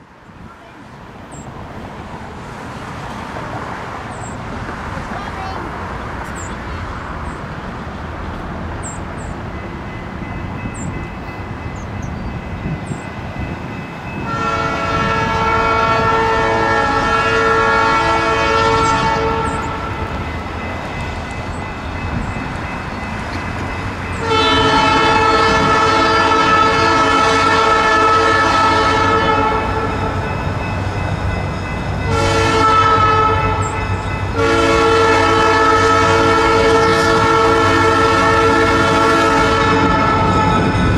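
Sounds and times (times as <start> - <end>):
low train rumble: 0.0 - 40.9
locomotive air horn blasts: 14.2 - 20.0, 24.2 - 30.1, 32.0 - 33.8, 34.4 - 40.8.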